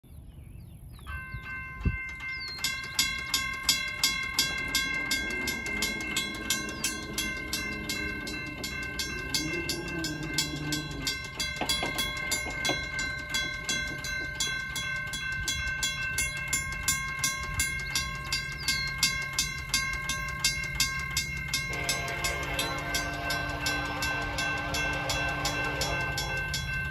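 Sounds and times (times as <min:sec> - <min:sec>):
crossing bells ringing: 0:00.9 - 0:26.9
steady electronic ring: 0:01.3 - 0:26.9
locomotive horn: 0:04.4 - 0:12.8, 0:21.5 - 0:26.9.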